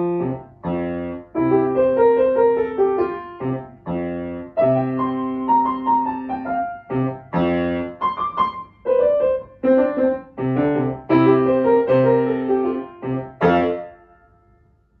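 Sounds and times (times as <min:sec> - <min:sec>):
grand piano chords: 0:00.0 - 0:15.0.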